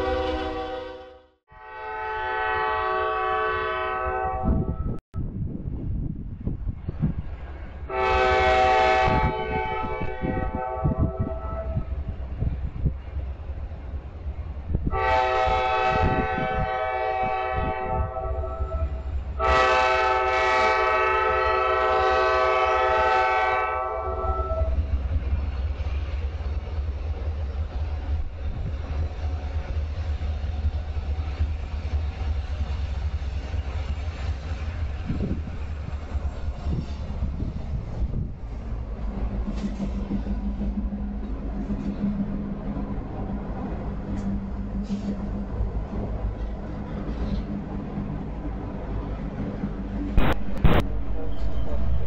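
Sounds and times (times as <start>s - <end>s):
locomotive horn blasts: 0.0s - 5.0s, 7.9s - 12.0s, 14.8s - 24.9s
train rumbling: 0.0s - 52.0s.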